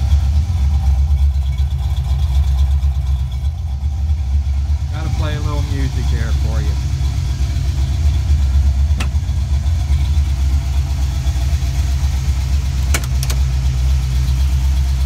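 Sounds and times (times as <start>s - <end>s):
car engine idling: 0.0s - 15.0s
sharp clicks: 12.9s - 13.5s.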